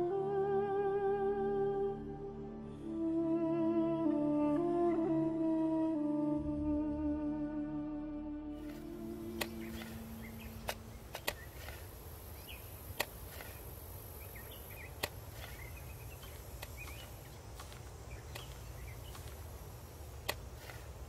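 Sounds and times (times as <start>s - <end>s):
low outdoor rumble: 8.4s - 21.0s
small birds chirping: 8.6s - 21.0s.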